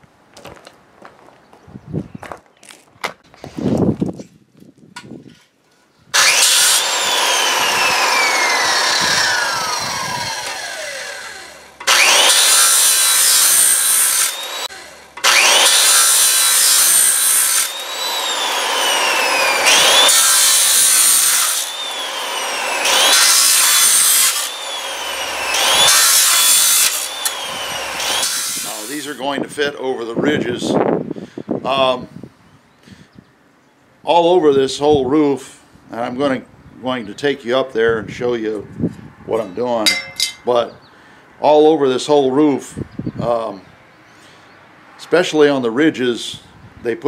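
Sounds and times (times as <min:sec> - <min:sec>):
circular saw cutting metal: 0:06.2 - 0:29.3, 0:39.9 - 0:40.6.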